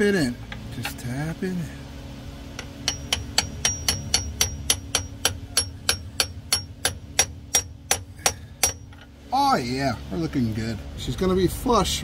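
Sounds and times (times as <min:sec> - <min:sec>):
hammer tapping on steel socket: 0:02.6 - 0:09.1.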